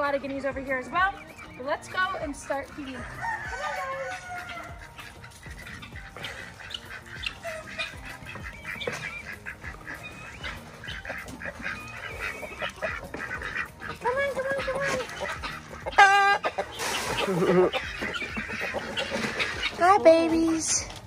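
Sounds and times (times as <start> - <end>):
poultry flock calling: 0.0 - 21.0.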